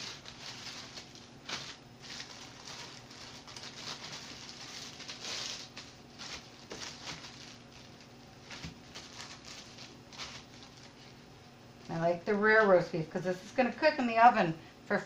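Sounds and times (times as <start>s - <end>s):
plastic packaging crinkling: 0.0s - 11.2s.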